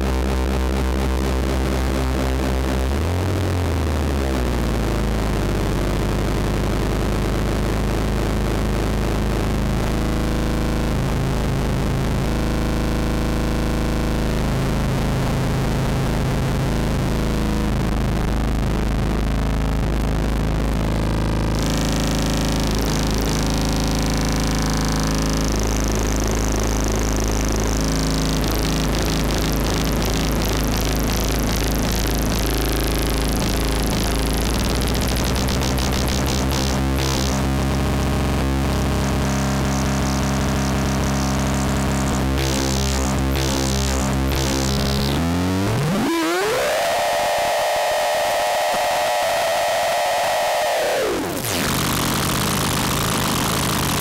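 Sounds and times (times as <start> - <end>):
harsh synthesizer drone: 0.0 - 54.0
fast warbling pulse: 45.7 - 54.0.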